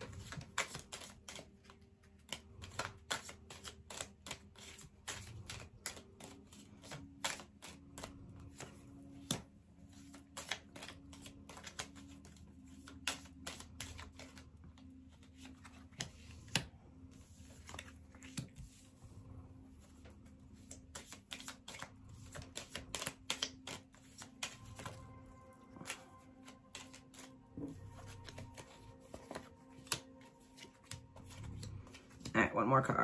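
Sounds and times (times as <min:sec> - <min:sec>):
cards being shuffled: 0:00.0 - 0:19.0, 0:19.6 - 0:32.3.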